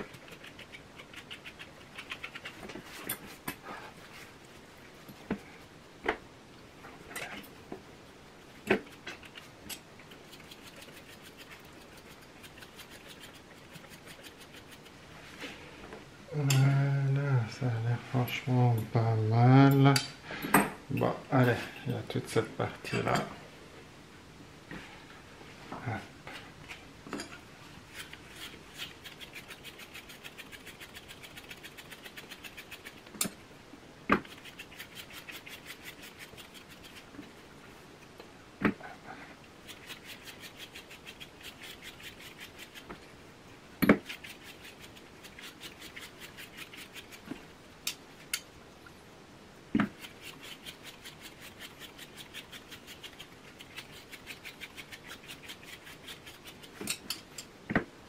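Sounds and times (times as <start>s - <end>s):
brush raking through dog coat: 10.1s - 15.6s, 27.8s - 33.1s, 34.2s - 37.1s, 39.6s - 43.0s, 44.0s - 47.3s, 49.9s - 56.8s.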